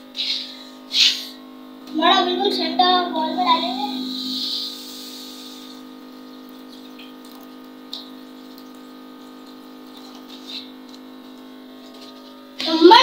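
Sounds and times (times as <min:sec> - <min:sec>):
steady hum: 0:00.0 - 0:13.0
water pouring into a pan: 0:05.8 - 0:10.9.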